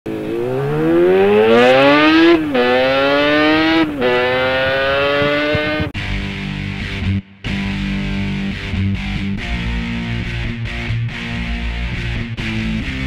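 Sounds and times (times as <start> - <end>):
motorcycle engine accelerating: 0.0 - 6.1.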